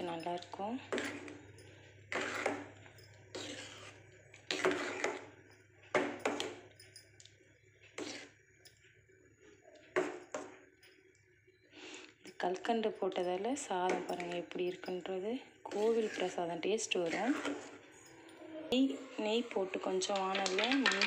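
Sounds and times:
ladle scraping metal pot: 0.0s - 5.3s, 6.0s - 6.7s, 8.0s - 8.3s, 12.3s - 15.1s, 15.7s - 18.0s, 18.7s - 21.0s.

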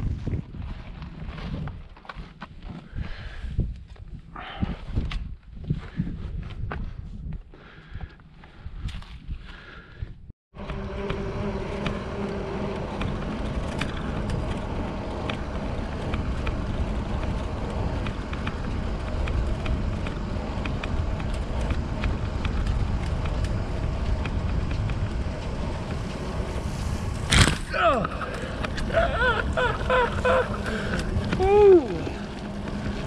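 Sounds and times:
wind on microphone: 0.0s - 1.9s, 2.6s - 7.6s.

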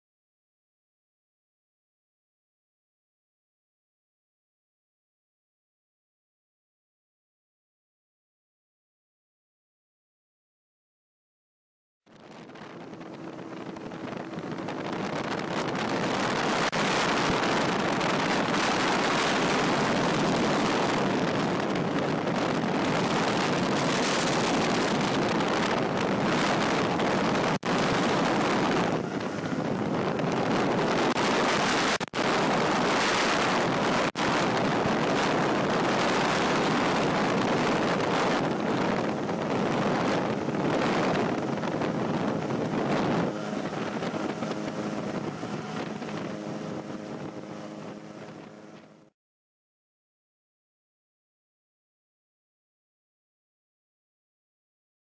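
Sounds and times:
wind buffeting microphone: 12.2s - 49.1s.

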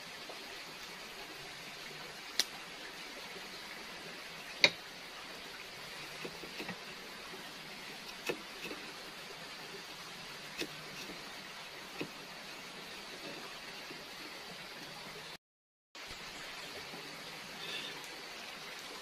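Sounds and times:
knife slicing potato: 8.0s - 9.0s, 10.5s - 11.2s
steady hiss: 16.0s - 19.0s.

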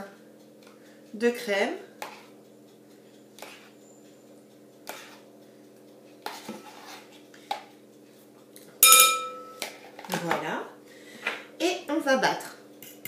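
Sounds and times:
metal spoon clinking glass bowl: 8.8s - 9.7s.

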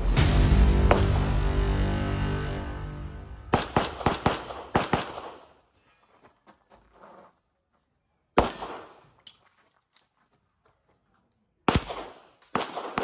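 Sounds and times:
background music: 0.0s - 4.5s
pistol shots: 3.5s - 5.5s, 8.4s - 9.0s, 11.7s - 13.0s.

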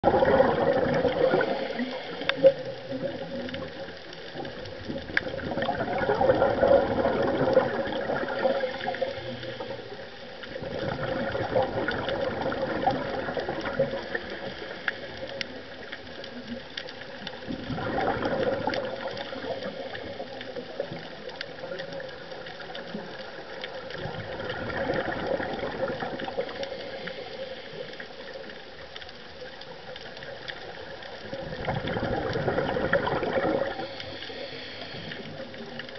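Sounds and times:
scuba diver breathing bubbles: 0.0s - 3.8s, 5.2s - 15.8s, 17.5s - 21.0s, 23.8s - 28.5s, 30.6s - 35.9s
steady hum: 33.6s - 35.6s.

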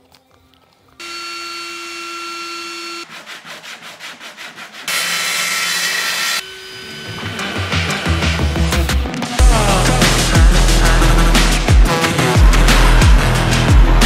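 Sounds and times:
motor whine: 1.0s - 3.0s
circular saw cutting board: 1.0s - 8.4s
rhythmic rasping strokes: 7.0s - 14.0s.

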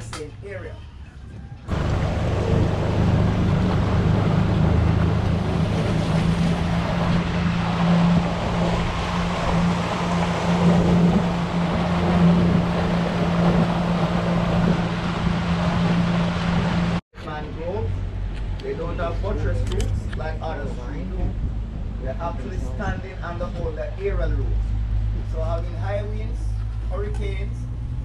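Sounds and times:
wind: 0.0s - 28.0s
rushing water: 1.7s - 17.0s
boat motor droning: 1.7s - 28.0s.

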